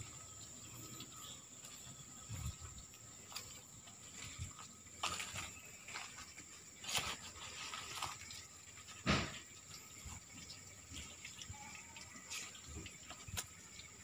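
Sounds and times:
footsteps on dirt: 0:01.6 - 0:08.4.

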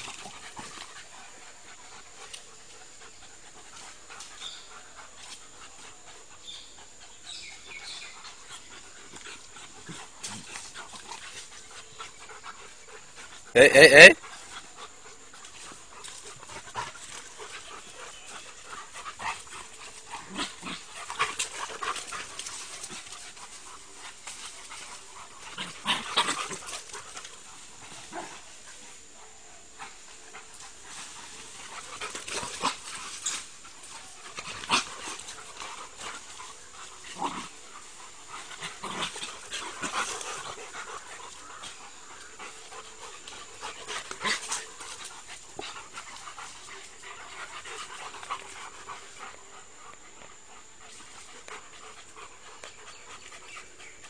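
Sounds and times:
dogs playing: 0:00.0 - 0:54.0.

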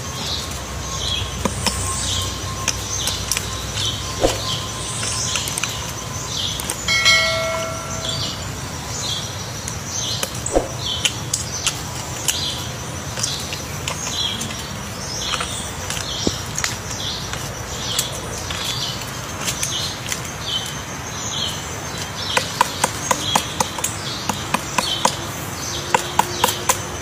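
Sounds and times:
woodpecker knocking on wood: 0:22.2 - 0:27.0.

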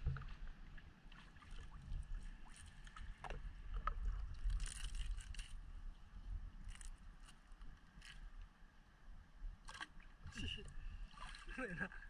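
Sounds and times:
shallow water sloshing and splashing: 0:00.0 - 0:06.0, 0:09.6 - 0:12.0.

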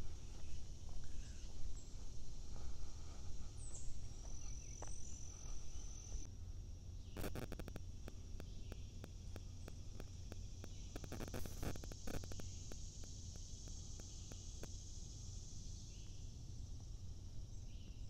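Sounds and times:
insect drone: 0:00.0 - 0:18.0
low steady rumble: 0:00.0 - 0:18.0
sharp clicks and ticks: 0:07.2 - 0:14.8.

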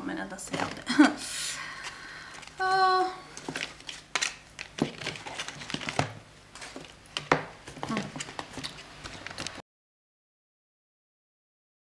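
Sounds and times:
rustling packaging: 0:01.8 - 0:09.6.

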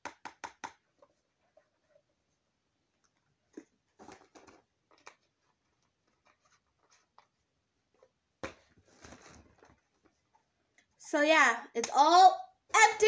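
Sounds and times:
plastic bottle clicks and rustles: 0:03.0 - 0:06.4.

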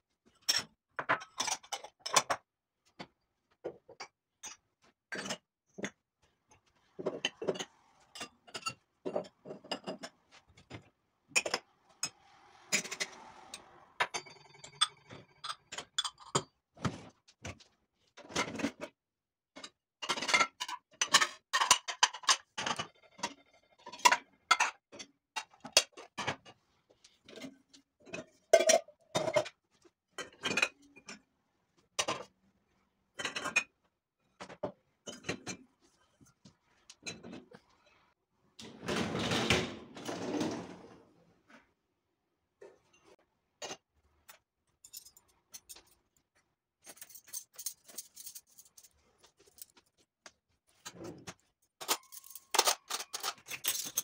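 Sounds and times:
glasses and pots clinking: 0:14.0 - 0:16.5.

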